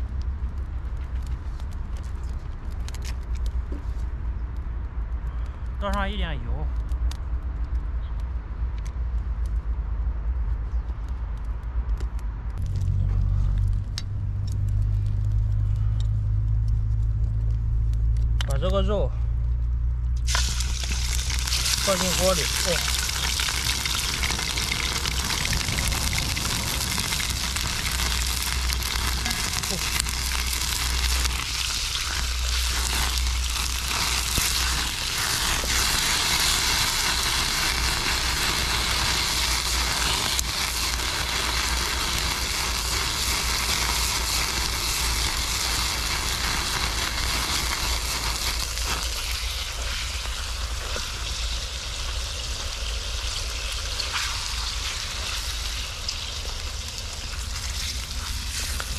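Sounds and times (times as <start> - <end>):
meat sizzling in hot oil: 20.2 - 58.9.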